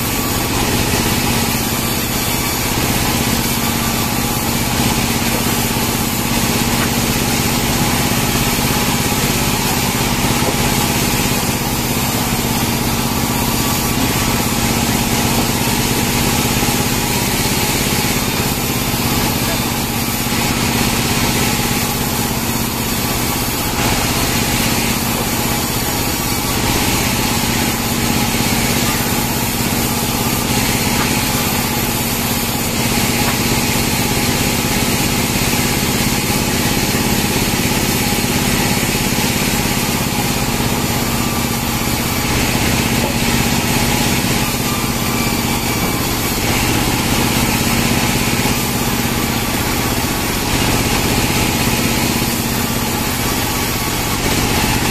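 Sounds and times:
bandsaw mill sawing logs: 0.0s - 54.9s.

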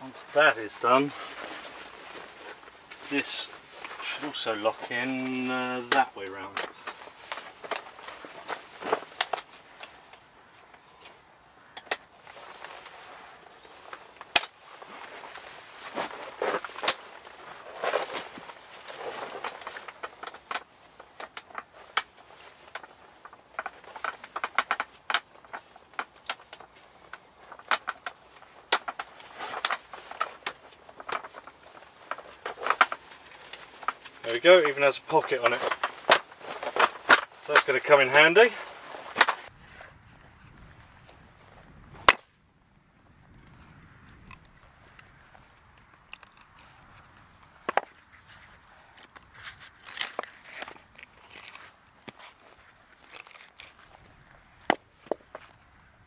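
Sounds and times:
axe cracking into log: 14.2s - 14.6s, 42.0s - 42.4s, 49.2s - 52.3s, 53.0s - 54.0s.

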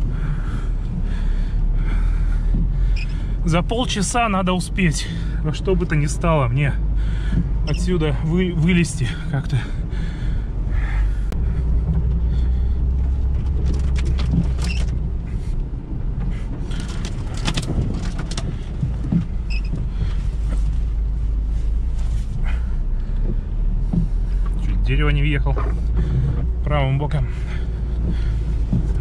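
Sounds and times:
car engine running: 0.0s - 29.0s
knocks and rattles: 11.8s - 15.2s, 16.2s - 20.8s, 27.4s - 29.0s.

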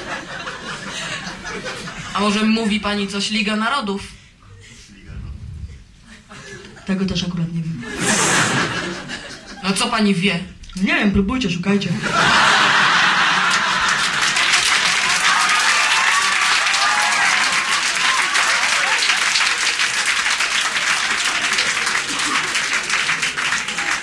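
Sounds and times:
audience applauding: 0.0s - 1.9s, 12.2s - 24.0s.

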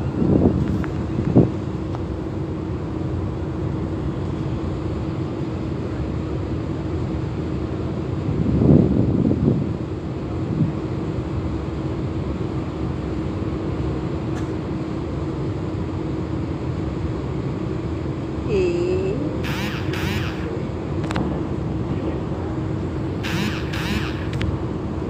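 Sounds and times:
ship engine rumble: 0.0s - 25.0s
wind on microphone: 8.3s - 10.8s
brief sliding tone: 19.4s - 20.5s, 23.2s - 24.4s
short sharp noises: 19.4s - 20.6s, 23.2s - 24.5s.

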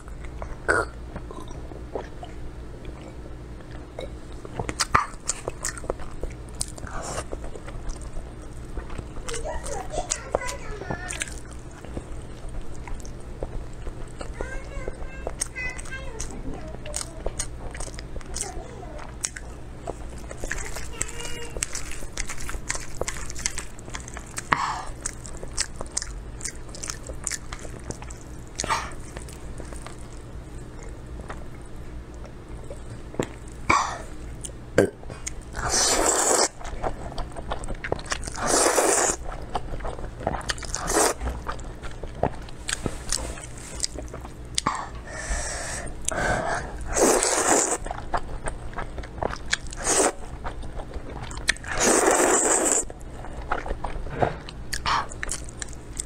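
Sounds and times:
wet chewing: 0.0s - 45.2s, 45.9s - 56.0s
noodle slurping: 35.6s - 36.6s, 38.3s - 39.2s, 40.6s - 41.2s, 46.1s - 47.9s, 49.7s - 50.3s, 51.6s - 52.9s.

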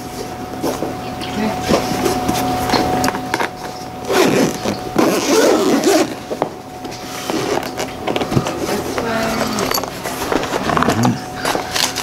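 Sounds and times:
zipper being drawn open: 4.1s - 6.2s.

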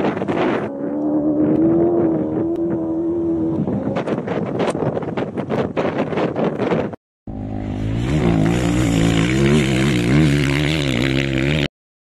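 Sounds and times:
wind on microphone: 0.0s - 7.0s
steady engine drone: 0.3s - 4.2s, 7.3s - 11.7s.

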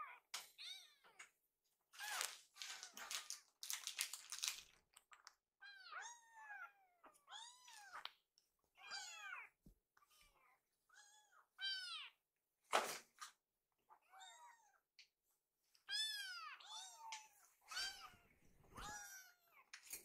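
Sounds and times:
kittens meowing: 5.6s - 8.1s, 8.8s - 12.2s, 15.8s - 19.7s.

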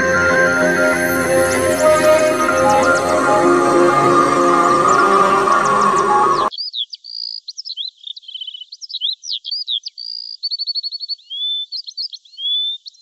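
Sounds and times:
birds singing: 3.9s - 13.0s.

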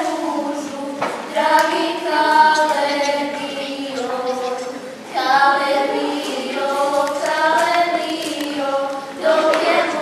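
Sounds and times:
girls singing folk song: 0.0s - 10.0s.

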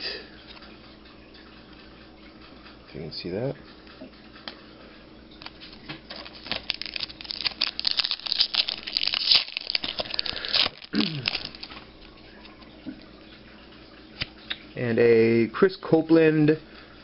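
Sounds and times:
foil wrapper crinkling: 5.4s - 12.6s.

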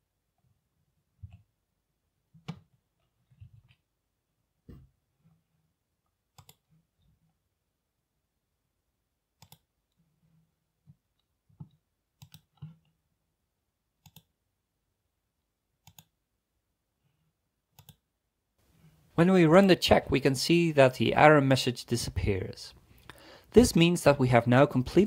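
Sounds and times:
computer mouse clicking: 6.3s - 6.7s, 9.4s - 9.7s, 11.5s - 13.0s, 14.0s - 14.3s, 15.8s - 16.2s, 17.7s - 18.0s.

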